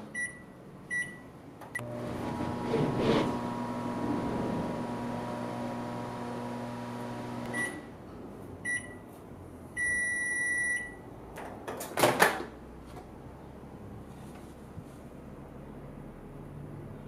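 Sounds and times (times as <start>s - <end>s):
microwave beeps: 0.1s - 2.1s, 7.4s - 7.9s, 8.7s - 9.0s, 9.8s - 11.0s
microwave oven humming: 1.8s - 7.9s.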